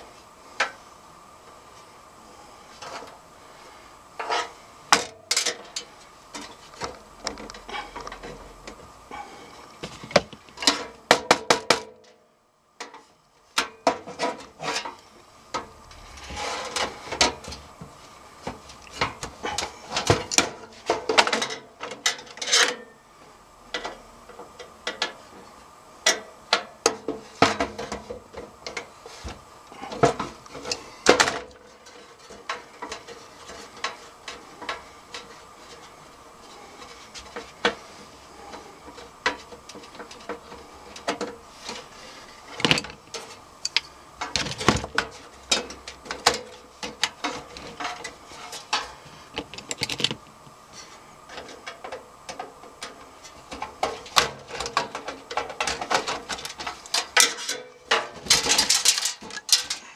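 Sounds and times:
metal parts clicking and scraping: 18.7s - 22.9s, 38.5s - 59.9s.

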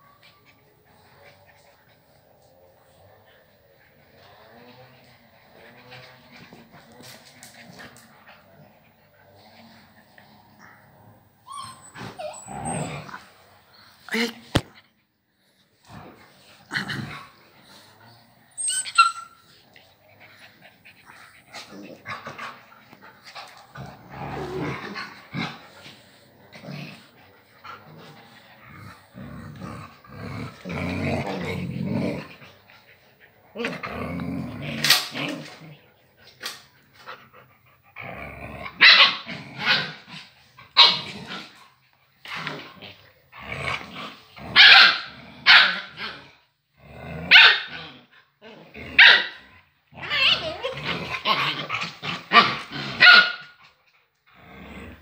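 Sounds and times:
puppies growling: 0.0s - 55.0s
puppies barking and yapping: 11.4s - 13.1s, 18.5s - 19.6s.

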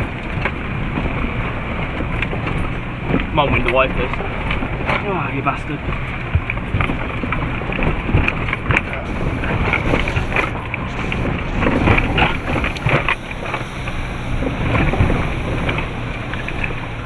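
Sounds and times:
vehicle engine running: 0.0s - 17.0s
wheels knocking and splashing: 0.0s - 17.0s
wind buffeting microphone: 0.0s - 17.0s.

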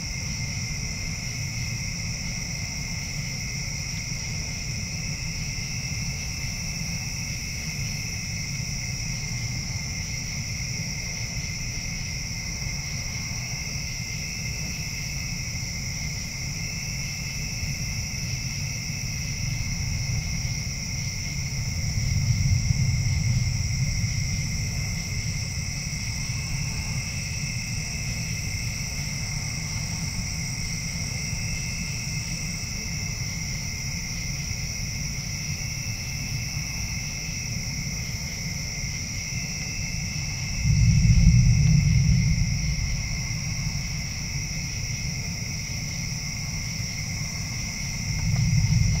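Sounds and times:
low rumble: 19.6s - 31.0s, 40.2s - 49.0s.

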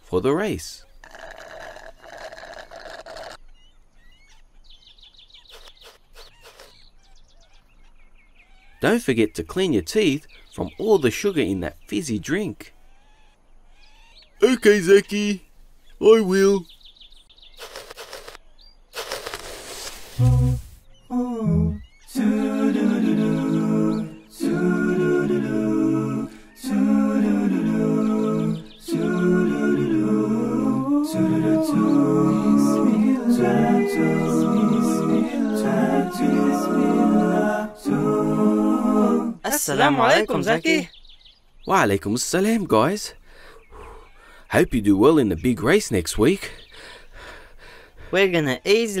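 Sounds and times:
birds chirping: 0.0s - 49.0s
slurping drink through a straw: 1.0s - 3.4s, 17.6s - 18.4s, 19.0s - 20.7s
short low sounds: 20.2s - 21.9s
voices humming in harmony: 20.2s - 40.9s.

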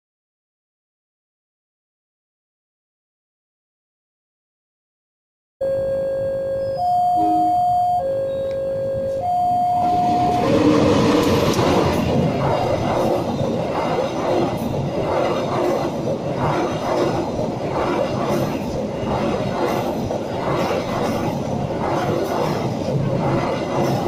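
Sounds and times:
train wheels rushing on rail: 9.2s - 24.0s.

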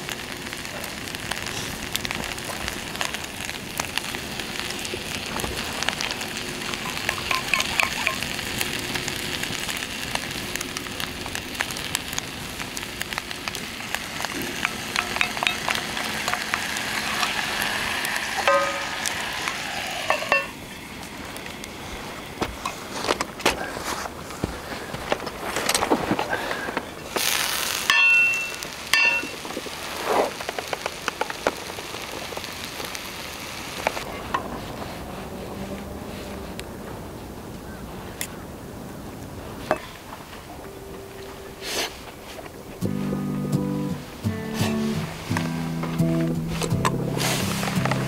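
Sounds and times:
steak sizzling in a skillet: 0.0s - 23.0s, 27.1s - 34.1s, 42.9s - 48.0s
crackles and pops: 0.0s - 48.0s
sauce poured into pan: 14.6s - 20.3s.

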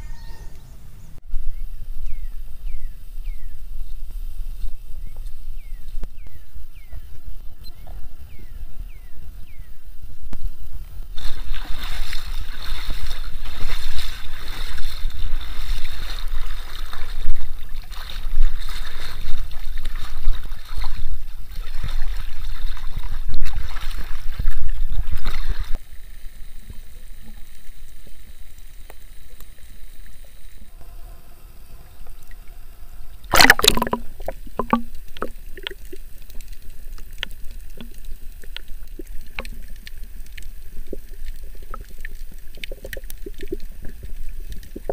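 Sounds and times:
underwater hiss: 8.0s - 16.9s, 25.7s - 44.9s
loud splash: 11.2s - 24.2s, 33.2s - 34.9s
seawater sloshing and splashing: 11.2s - 25.8s, 33.1s - 44.9s.

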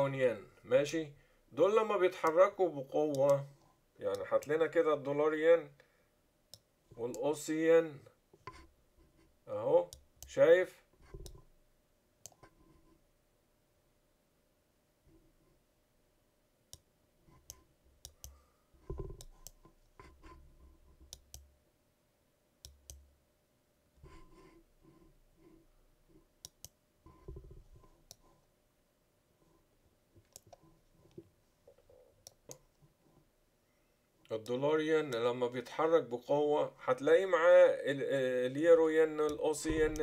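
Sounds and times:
computer mouse clicking: 11.0s - 11.5s, 12.2s - 12.6s, 17.4s - 20.4s, 21.0s - 21.5s, 26.4s - 28.3s, 30.2s - 32.8s, 39.3s - 40.0s
soft low thuds: 39.6s - 40.0s.

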